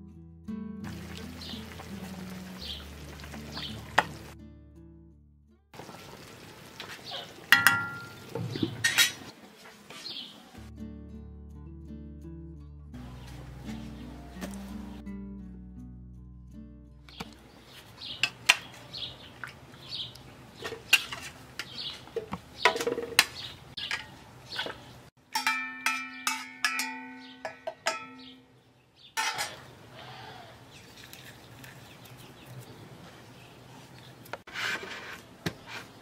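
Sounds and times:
spoon clinking and scraping: 0:07.5 - 0:08.2, 0:20.6 - 0:23.1, 0:23.8 - 0:28.4, 0:29.2 - 0:29.7
metal pot knocking on jar: 0:07.5 - 0:09.0, 0:25.2 - 0:28.4.

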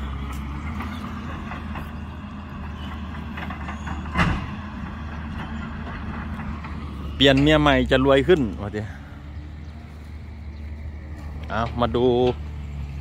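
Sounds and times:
excavator diesel engine droning: 0:00.0 - 0:13.0.

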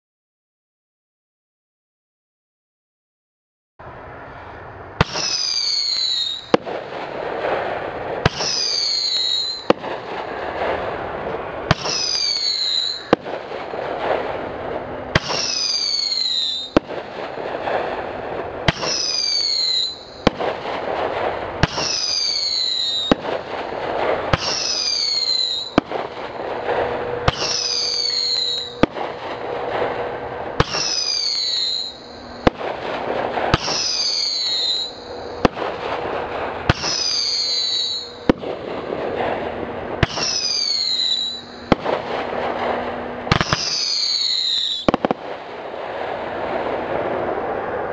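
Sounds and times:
firework crackle: 0:03.9 - 0:47.9
firework whistle falling in pitch: 0:05.0 - 0:06.6, 0:08.3 - 0:09.8, 0:11.7 - 0:13.2, 0:15.2 - 0:16.8, 0:18.7 - 0:20.4, 0:21.7 - 0:23.4, 0:24.3 - 0:29.0, 0:30.6 - 0:32.6, 0:33.4 - 0:35.6, 0:36.7 - 0:38.4, 0:40.0 - 0:45.1
firework bang: 0:05.0 - 0:47.4.

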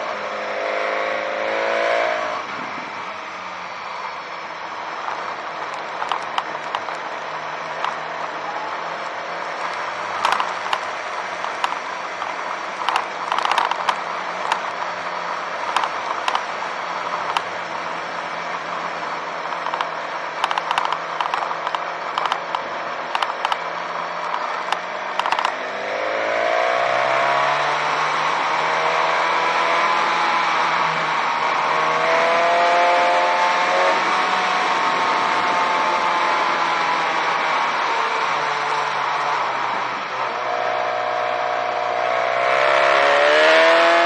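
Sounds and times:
motorcycle engine: 0:00.0 - 0:44.0
rattles on cobblestones: 0:02.7 - 0:25.8, 0:29.8 - 0:40.6.

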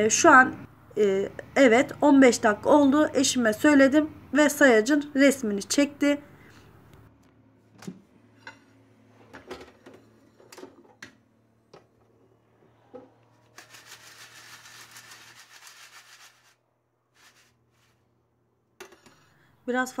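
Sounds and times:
fries rattling in a shaken basket: 0:13.5 - 0:16.6.

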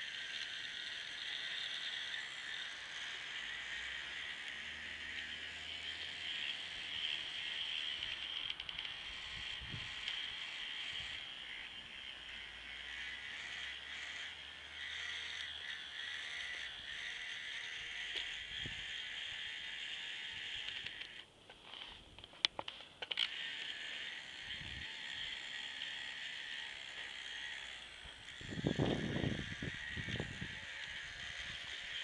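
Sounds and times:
toy truck motor whirring: 0:00.0 - 0:32.0
sharp clicks: 0:07.8 - 0:09.1, 0:18.0 - 0:18.4, 0:20.5 - 0:26.0.

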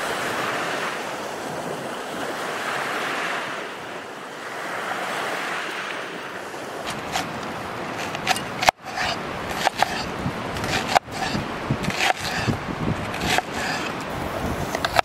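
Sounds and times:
clicks and rustles of handling: 0:06.8 - 0:14.1.

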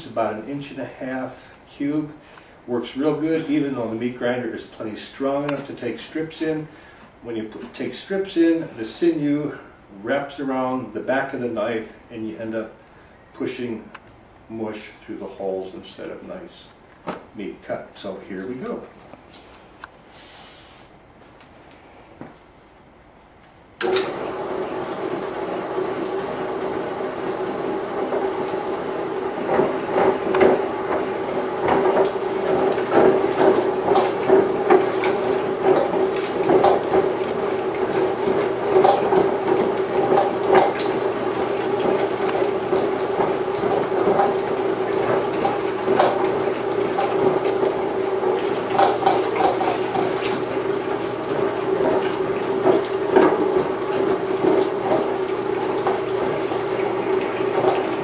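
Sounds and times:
meat grinder clicks and crackles: 0:23.8 - 0:58.0
meat grinder motor humming: 0:23.8 - 0:58.0.

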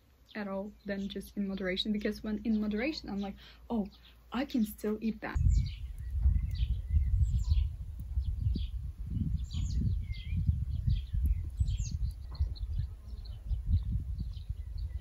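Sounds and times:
small songbirds chirping: 0:00.0 - 0:15.0
wind rumble on microphone: 0:05.3 - 0:15.0.

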